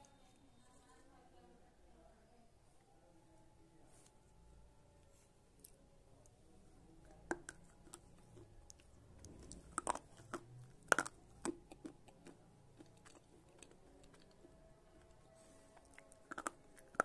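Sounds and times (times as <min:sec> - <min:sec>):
crunching snaps of chewing: 0:07.3 - 0:15.1, 0:15.8 - 0:17.0.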